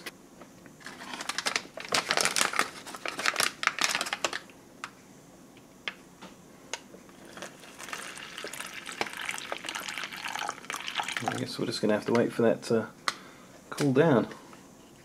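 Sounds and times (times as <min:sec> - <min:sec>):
drink pouch crinkling: 0:00.8 - 0:04.5
hot water pouring into pouch: 0:07.2 - 0:11.5.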